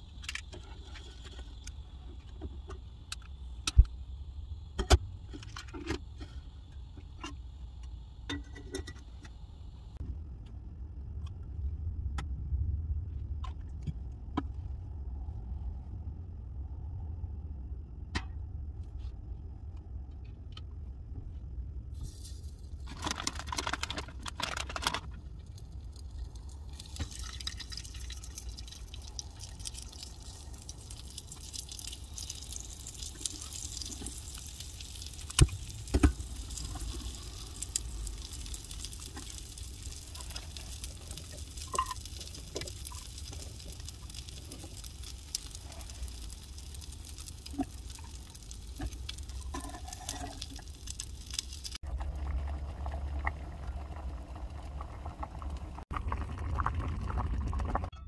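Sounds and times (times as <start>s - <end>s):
faint ticks and drips: 25.3s - 55.9s.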